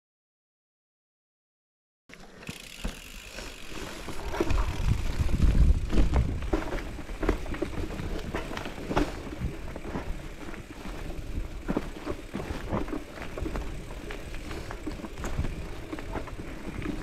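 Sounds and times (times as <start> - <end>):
bike clacking and rattling: 2.1 - 17.0
bike tyres rumbling on dirt: 2.4 - 17.0.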